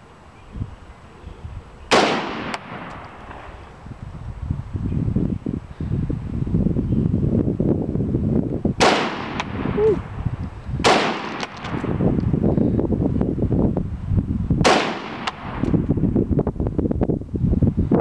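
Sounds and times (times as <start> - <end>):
rifle shots with echo: 1.9 - 3.6, 8.8 - 9.8, 10.8 - 12.0, 14.6 - 15.7.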